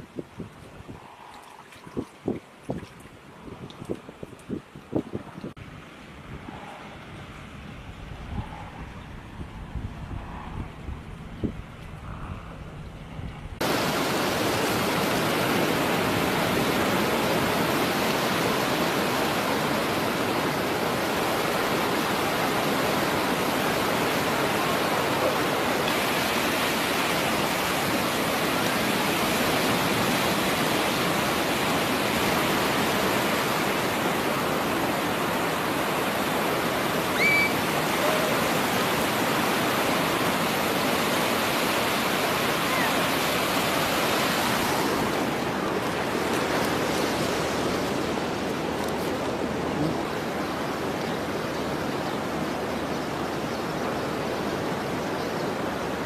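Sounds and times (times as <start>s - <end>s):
waves breaking on a beach: 0.0s - 7.8s, 13.6s - 56.0s
high rising cry: 37.1s - 38.3s.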